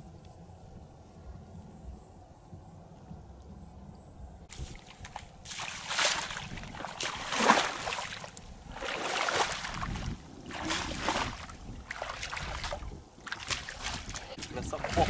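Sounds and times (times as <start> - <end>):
footsteps splashing in muddy water: 4.5 - 15.0.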